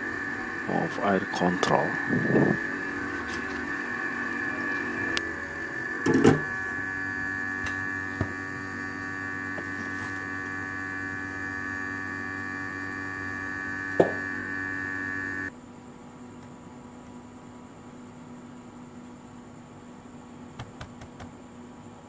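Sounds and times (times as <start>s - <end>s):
hot-air blower humming: 0.0s - 15.5s
faint hum: 0.0s - 22.0s.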